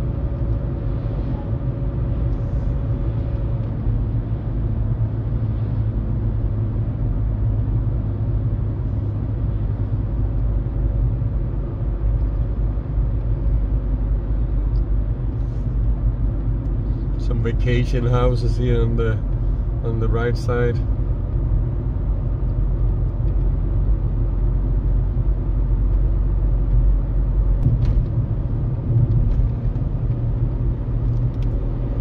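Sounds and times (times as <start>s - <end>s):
vehicle engine and tyre rumble: 0.0s - 32.0s.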